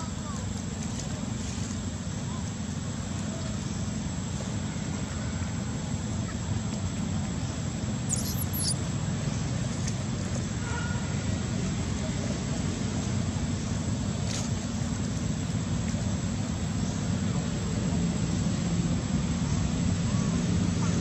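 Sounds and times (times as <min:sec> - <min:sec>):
low rumbling background noise: 0:00.0 - 0:21.0
faint high chirp: 0:08.0 - 0:08.8.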